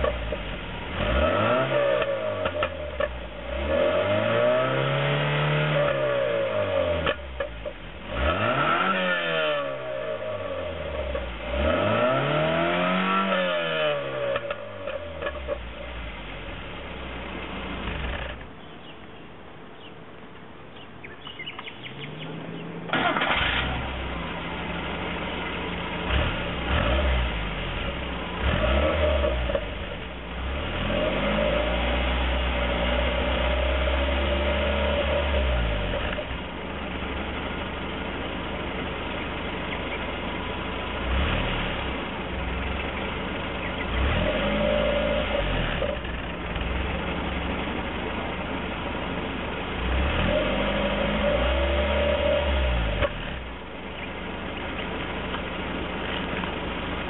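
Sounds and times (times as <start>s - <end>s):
car engine starting and revving: 0.0s - 18.6s, 21.4s - 57.0s
exhaust popping: 0.0s - 18.7s, 21.2s - 57.0s.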